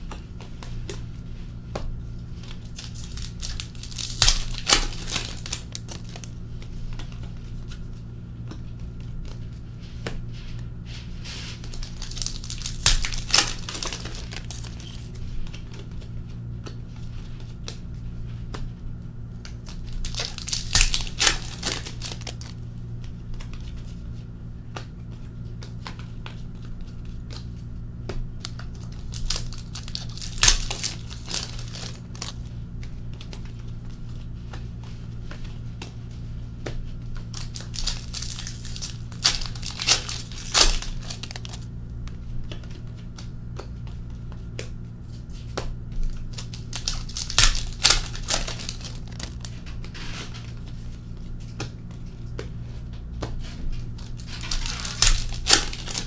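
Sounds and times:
cards being handled: 0.0 - 56.0
wrappers torn and crinkled: 2.3 - 6.4, 11.4 - 15.8, 19.5 - 22.6, 28.4 - 34.2, 37.2 - 41.7, 46.0 - 51.0, 53.9 - 56.0.

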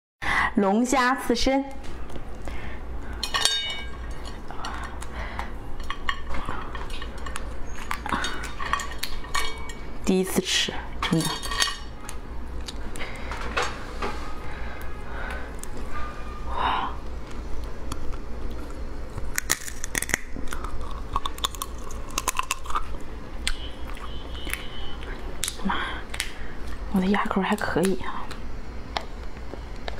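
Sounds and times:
steady low hum: 0.2 - 29.9
chewing with wet clicks: 6.7 - 9.3, 12.0 - 13.1, 17.3 - 26.8
lobster shell cracking: 17.8 - 23.6.

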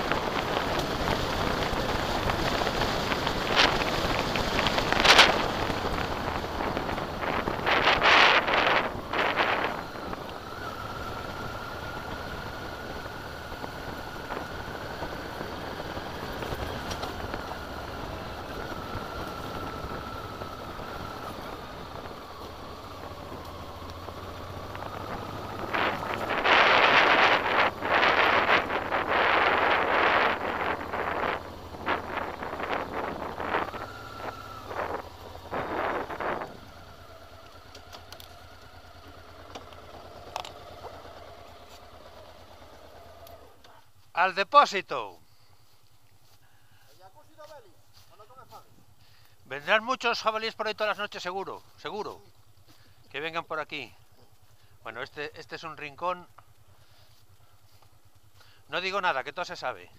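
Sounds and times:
wind noise on microphone: 0.0 - 37.2
motorcycle engine running: 0.0 - 44.5, 45.2 - 59.9.

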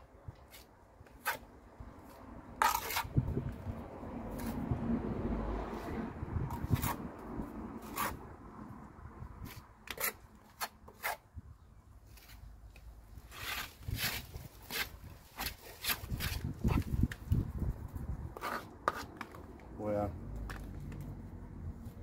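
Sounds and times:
metal tool scraping mortar: 0.4 - 1.5, 2.1 - 3.2, 6.5 - 7.2, 7.8 - 8.2, 9.4 - 11.2, 13.2 - 17.1, 18.4 - 19.5.

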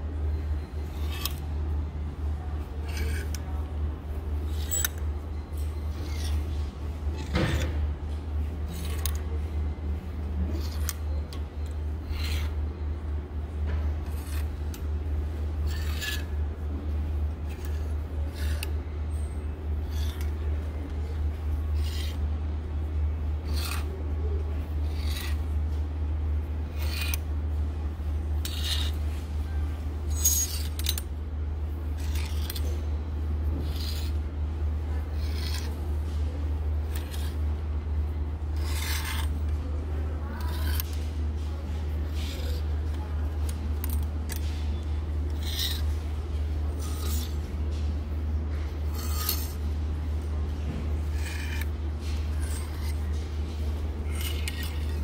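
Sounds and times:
steady low hum: 0.0 - 55.0
hangers sliding on clothing rack: 15.6 - 16.3, 28.4 - 29.0, 33.6 - 34.2, 36.8 - 37.4, 46.8 - 47.4, 48.8 - 49.6, 51.1 - 53.0, 54.0 - 55.0.

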